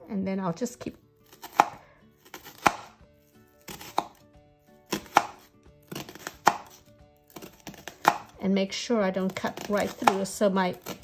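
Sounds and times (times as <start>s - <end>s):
knife slicing on cutting board: 1.3s - 3.0s, 3.6s - 4.2s, 4.9s - 8.3s.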